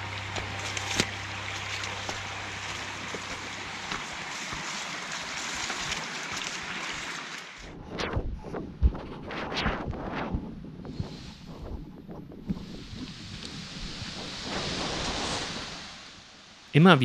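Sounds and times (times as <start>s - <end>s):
footsteps on path: 0.0s - 7.4s
stream rushing: 0.0s - 7.6s.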